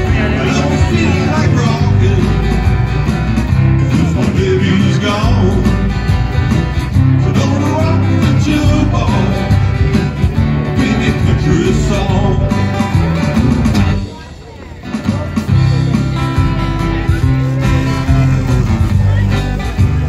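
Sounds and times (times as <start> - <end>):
man singing into microphone: 0.0 - 2.7, 3.9 - 5.9, 7.0 - 10.0, 10.6 - 12.9
acoustic guitar: 0.0 - 20.0.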